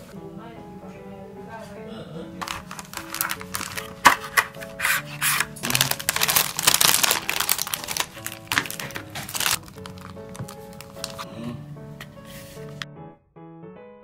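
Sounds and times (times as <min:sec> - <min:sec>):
background music simple melody: 0:00.0 - 0:14.0
cellophane crinkling: 0:02.4 - 0:11.3.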